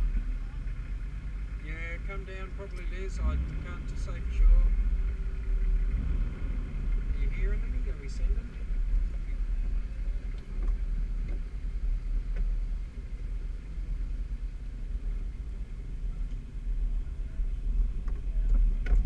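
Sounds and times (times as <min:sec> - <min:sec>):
engine running at low revs: 0:00.0 - 0:19.0.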